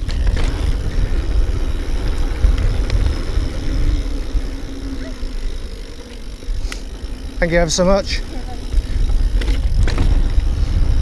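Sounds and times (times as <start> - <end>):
tyres rolling over dirt: 0.0 - 7.8
bike clicks and rattles: 0.0 - 11.0
wind buffeting microphone: 0.0 - 11.0.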